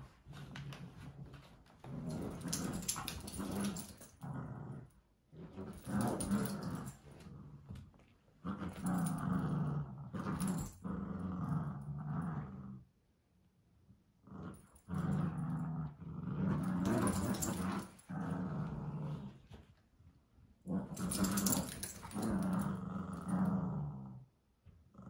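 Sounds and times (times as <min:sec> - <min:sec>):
dog growling: 0:08.4 - 0:12.8, 0:14.3 - 0:19.4, 0:20.7 - 0:24.2.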